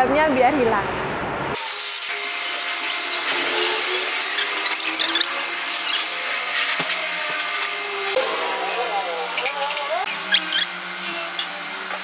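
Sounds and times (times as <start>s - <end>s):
pressure washer spray hissing: 1.6s - 8.4s
pressure washer motor whine: 1.6s - 12.0s.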